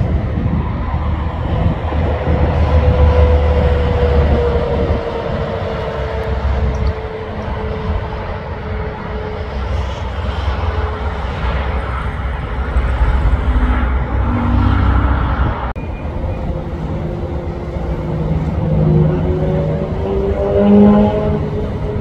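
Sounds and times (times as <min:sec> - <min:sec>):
distant traffic: 0:00.0 - 0:22.0
heavy truck passing: 0:00.0 - 0:22.0.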